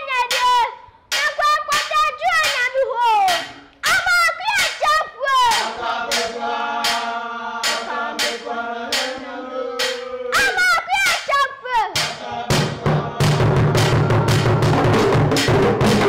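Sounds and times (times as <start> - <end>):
boy singing chant-like song: 0.0 - 15.0
sharp claps: 0.2 - 9.2, 9.8 - 11.4, 12.0 - 12.2
hand drums: 5.5 - 9.2, 9.8 - 11.3, 12.0 - 16.0.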